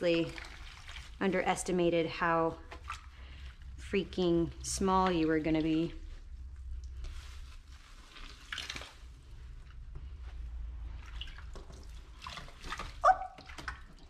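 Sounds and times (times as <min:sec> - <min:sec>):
small splashes: 0:00.0 - 0:01.2, 0:02.6 - 0:03.8, 0:07.9 - 0:09.2, 0:10.9 - 0:14.0
water splashing and dripping: 0:00.0 - 0:01.8, 0:02.6 - 0:03.8, 0:08.0 - 0:09.2, 0:10.8 - 0:14.0.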